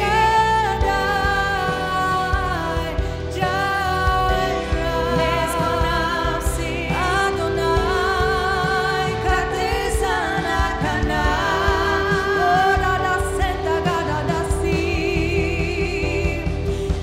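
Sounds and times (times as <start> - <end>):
person singing: 0.0 - 17.0
sustained note and bass: 0.0 - 17.0.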